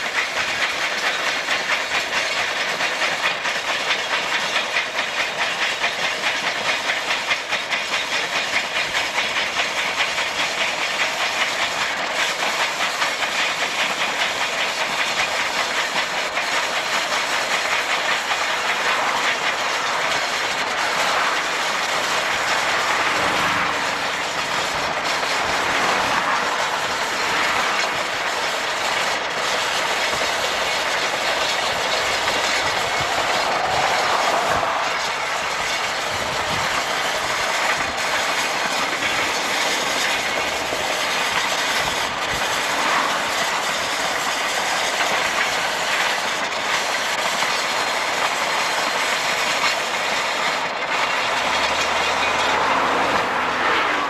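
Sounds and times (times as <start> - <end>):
steam train rushing on rails: 0.0 - 54.0
car road noise: 18.7 - 29.4, 30.6 - 43.7, 51.0 - 54.0.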